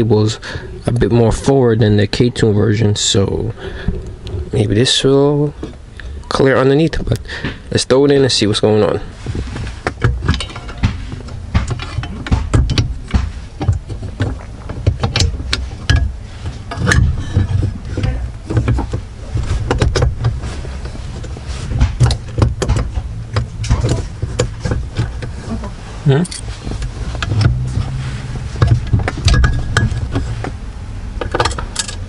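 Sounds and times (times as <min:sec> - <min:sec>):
low rumble: 0:09.0 - 0:32.0
metal parts clicking and rattling: 0:09.3 - 0:25.5, 0:26.1 - 0:30.6, 0:31.2 - 0:32.0.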